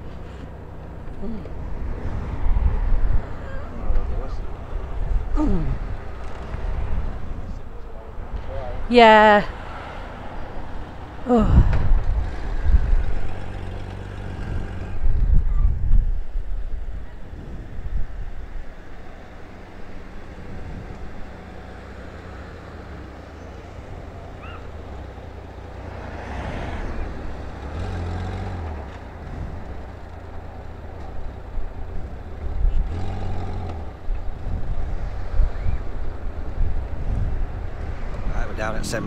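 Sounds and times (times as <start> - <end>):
street traffic passing: 0.0 - 39.0.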